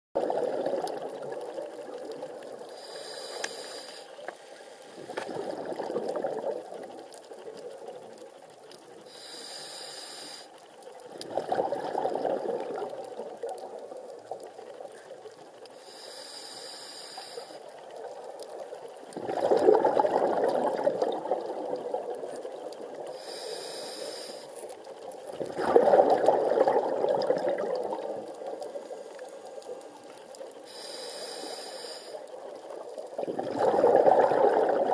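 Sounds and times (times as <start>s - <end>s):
exhaled bubbles rushing: 0.2s - 2.7s, 5.0s - 7.1s, 11.1s - 14.6s, 18.0s - 23.1s, 25.2s - 28.9s, 32.4s - 34.9s
regulator inhale hiss: 2.7s - 5.2s, 9.0s - 10.6s, 15.7s - 17.8s, 23.0s - 24.7s, 30.6s - 32.5s.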